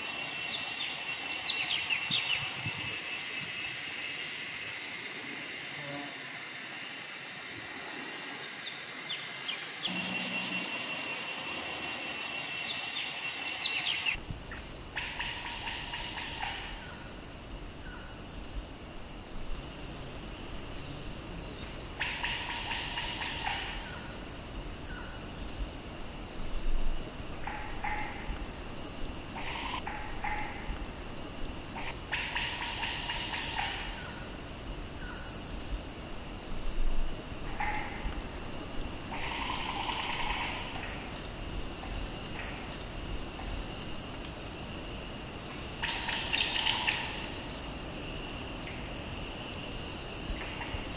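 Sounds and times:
faint high twittering: 0.0s - 14.2s
high insect drone: 0.0s - 50.9s.

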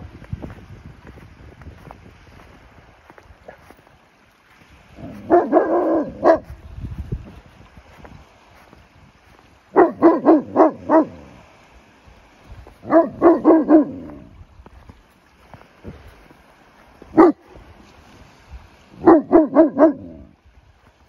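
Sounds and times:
dog barking: 3.4s - 3.8s, 5.0s - 6.6s, 9.7s - 11.3s, 12.8s - 14.3s, 17.1s - 17.5s, 19.0s - 20.3s.

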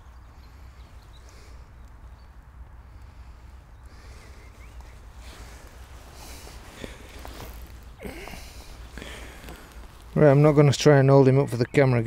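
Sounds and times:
faint clicks: 0.8s - 5.9s
clothing and net rustling: 4.0s - 11.8s.

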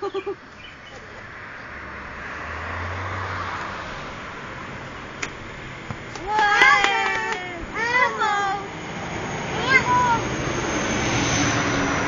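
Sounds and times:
vehicle driving past: 1.2s - 5.9s, 8.6s - 12.0s.

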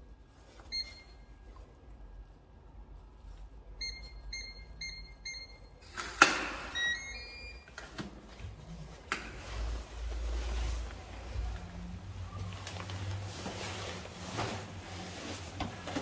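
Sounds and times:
keypad beeps: 3.8s - 5.8s, 6.7s - 7.7s.

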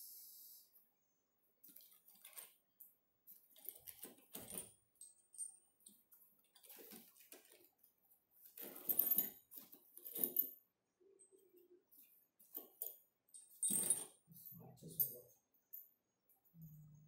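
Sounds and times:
metal parts clinking and rattling: 3.6s - 7.6s, 8.5s - 10.6s, 12.5s - 14.3s.

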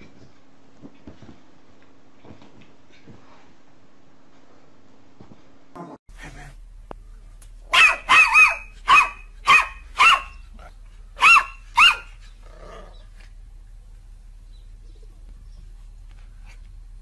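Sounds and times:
puppy barking: 7.7s - 12.2s.

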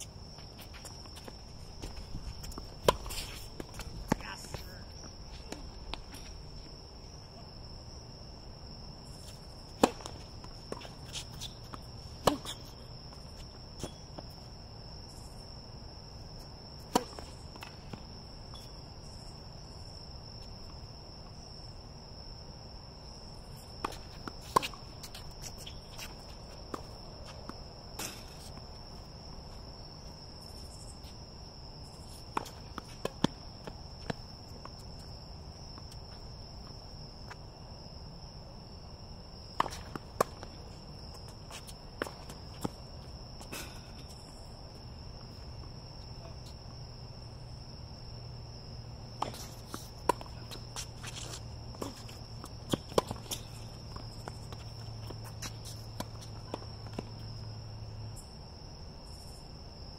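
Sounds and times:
crickets trilling: 0.0s - 59.9s
tennis ball bouncing on court: 0.3s - 6.3s, 9.2s - 14.4s, 16.8s - 18.7s, 23.7s - 28.7s, 32.2s - 35.1s, 39.5s - 44.2s, 49.2s - 57.5s
tennis ball hit by racket: 9.8s - 10.8s, 12.1s - 12.6s, 16.8s - 17.8s.

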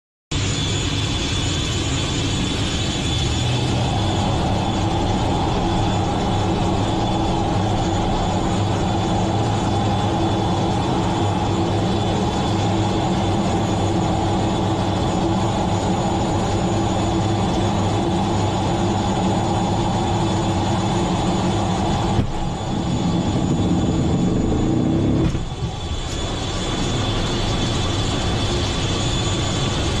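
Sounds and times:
fighter jet engines whining: 0.3s - 30.0s.

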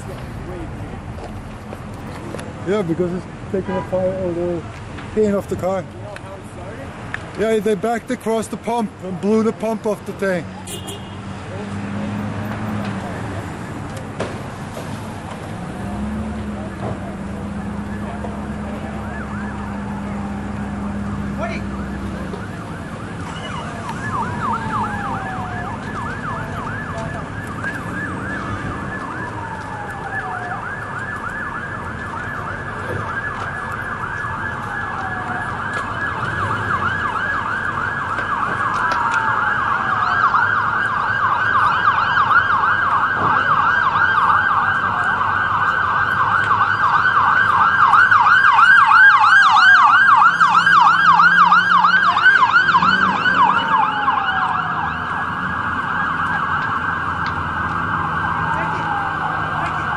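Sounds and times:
siren sweeping down: 15.7s - 59.9s
siren fast yelp: 21.3s - 59.9s.

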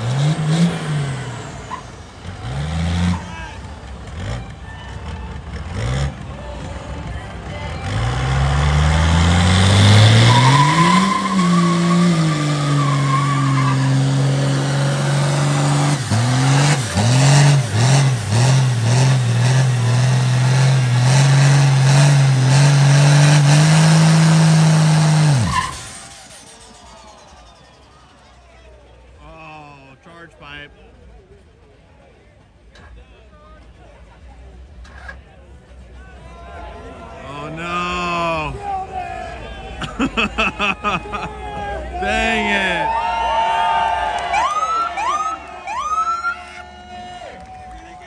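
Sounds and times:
car engine revving: 0.0s - 4.6s, 7.7s - 27.2s
tires squealing: 0.0s - 6.2s, 7.8s - 28.4s.

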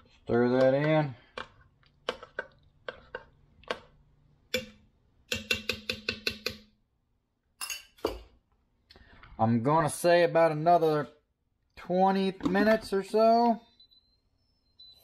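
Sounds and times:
spoon stirring thick stew: 0.0s - 6.6s.

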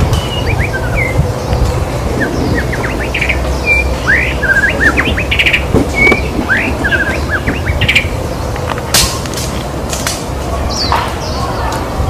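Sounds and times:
low background rumble: 0.0s - 12.0s
bird singing whistles: 0.1s - 1.2s, 2.1s - 8.1s.

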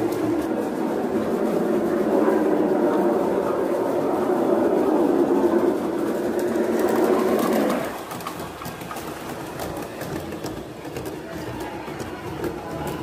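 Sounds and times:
model train running on track: 0.0s - 13.0s
train wheels clicking: 0.0s - 13.0s.

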